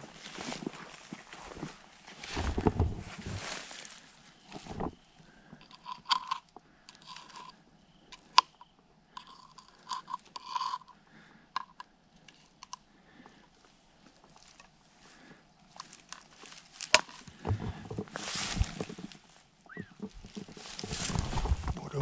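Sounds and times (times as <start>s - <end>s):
rustling in dry pine straw: 0.0s - 5.1s, 14.2s - 17.4s, 18.0s - 22.0s.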